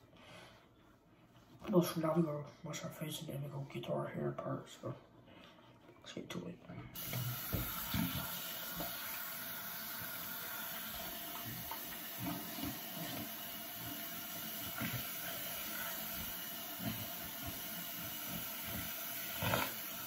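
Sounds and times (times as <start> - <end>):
sink tap running: 7.0 - 20.0.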